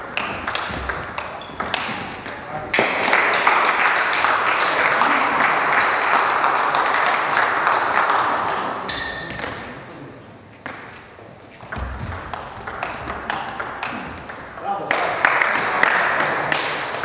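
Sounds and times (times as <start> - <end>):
spectators clapping: 2.7 - 8.9, 14.9 - 17.0.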